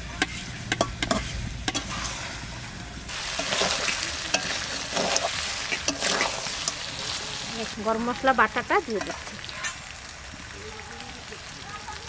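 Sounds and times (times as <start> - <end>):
food sizzling in oil: 0.0 - 12.0
metal spatula scraping a pan: 0.1 - 2.5, 3.1 - 7.5.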